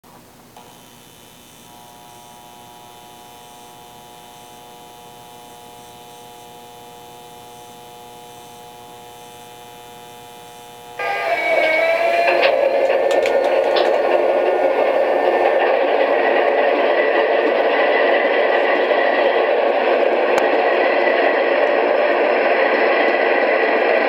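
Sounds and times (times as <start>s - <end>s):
steady electrical hum: 0.1s - 17.5s
high even tones: 11.0s - 15.7s.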